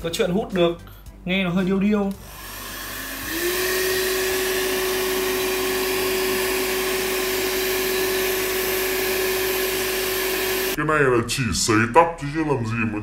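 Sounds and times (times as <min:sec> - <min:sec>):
hair dryer motor whine: 0:02.2 - 0:10.8.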